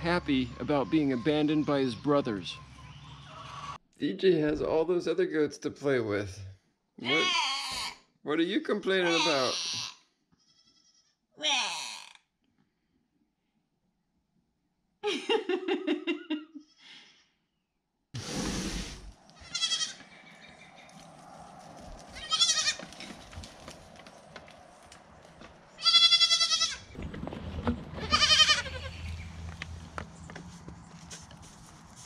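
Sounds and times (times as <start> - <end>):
goat kids bleating: 7.0 - 8.0, 8.9 - 12.0, 19.3 - 20.1, 22.2 - 22.9, 25.8 - 26.9, 28.0 - 29.2
short rush of noise: 18.2 - 19.2.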